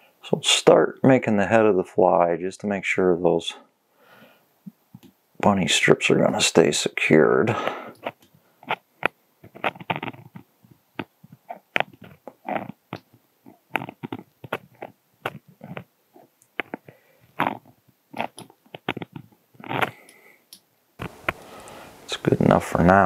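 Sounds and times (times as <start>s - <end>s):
thread rasping over materials: 7.6s - 21.6s.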